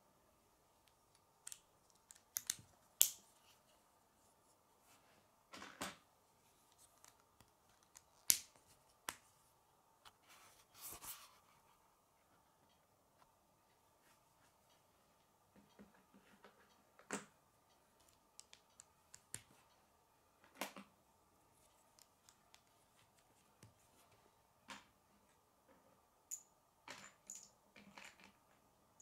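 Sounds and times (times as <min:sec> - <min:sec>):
plastic pieces clicking and snapping together: 0:01.1 - 0:03.2.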